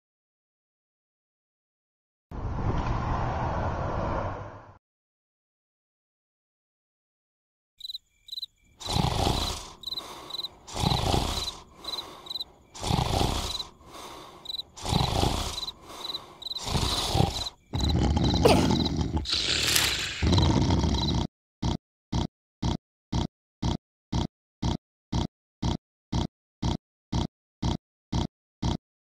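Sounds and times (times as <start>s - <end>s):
crickets chirping: 7.8s - 21.2s
loud rasping snores: 8.8s - 28.8s.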